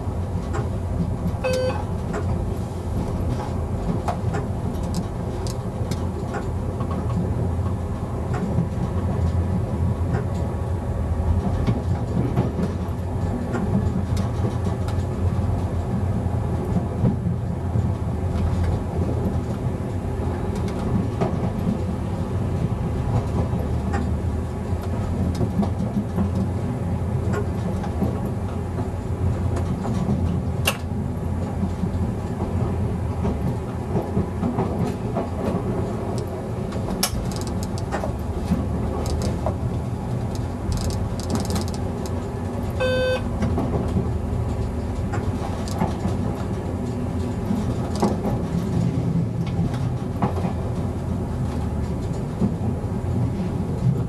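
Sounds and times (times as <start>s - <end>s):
railcar engine and wheels rumble: 0.0s - 54.0s
sharp clicks from track: 2.1s - 2.3s, 3.3s - 9.4s, 29.6s - 30.9s, 36.1s - 39.6s, 40.2s - 42.2s, 44.6s - 46.6s, 47.3s - 48.4s.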